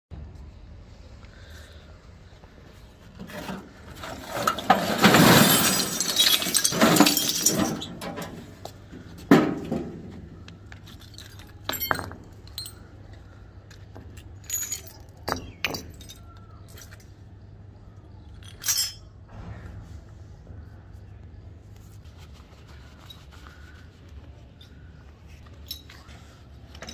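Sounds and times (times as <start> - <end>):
scrap metal clattering on concrete: 3.1 - 13.0
metal pieces clinking: 4.2 - 8.4, 10.7 - 13.0, 14.1 - 17.1, 18.3 - 19.1, 25.4 - 26.1, 26.7 - 26.9.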